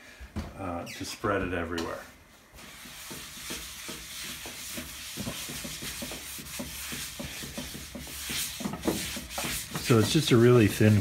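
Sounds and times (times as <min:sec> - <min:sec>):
paper towel scrubbing a skillet: 0:02.5 - 0:11.0.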